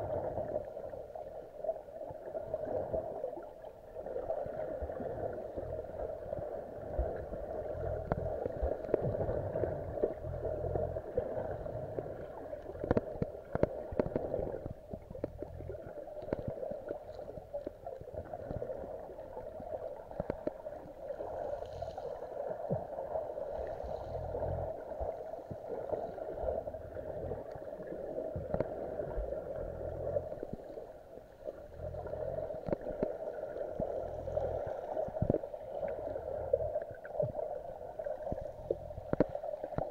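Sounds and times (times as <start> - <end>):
low water surges: 0.0 - 39.9
underwater water rushing over pebbles: 0.0 - 39.9
sharp underwater clicks: 12.2 - 17.8, 20.1 - 20.8, 28.4 - 28.8, 32.6 - 33.2, 38.4 - 39.9.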